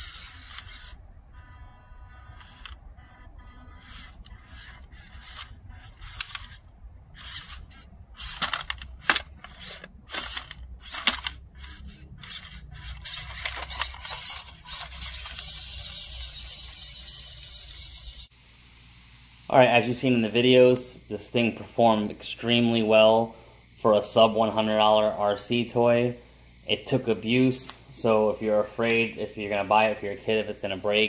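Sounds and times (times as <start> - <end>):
toy truck motor whirring: 0.0 - 18.3.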